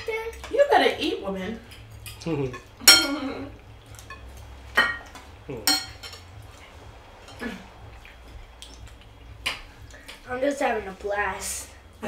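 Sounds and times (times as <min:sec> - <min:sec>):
cutlery clinking on plates: 0:01.6 - 0:03.3, 0:03.9 - 0:06.4.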